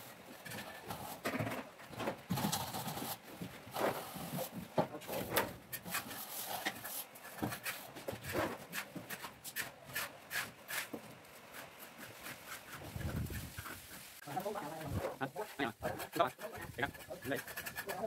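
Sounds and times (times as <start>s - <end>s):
straightedge scraping wet plaster: 5.7s - 18.0s.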